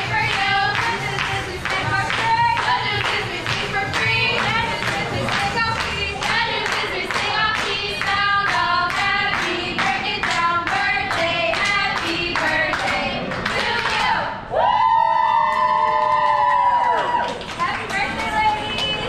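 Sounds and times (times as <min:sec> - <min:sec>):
people clapping a steady beat: 0:00.0 - 0:14.3, 0:15.4 - 0:19.0
group singing: 0:00.0 - 0:14.4.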